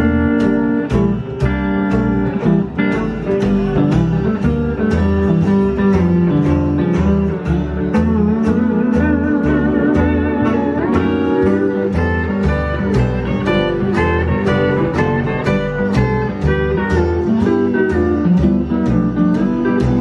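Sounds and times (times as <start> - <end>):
lap steel guitar sliding lead: 0.0 - 20.0
steady drum beat: 0.0 - 20.0
walking bass line: 0.0 - 20.0.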